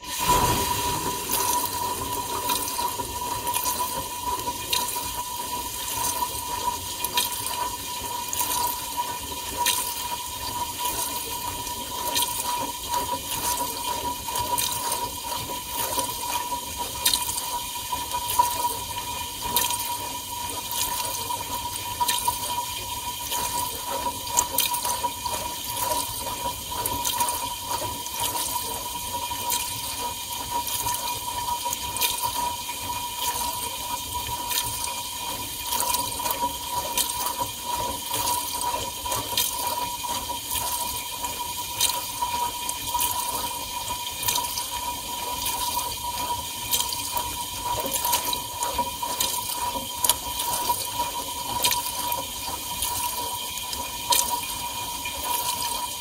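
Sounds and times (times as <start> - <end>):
dishwasher water spraying and splashing: 0.0 - 8.9
dishwasher whine: 0.0 - 56.0.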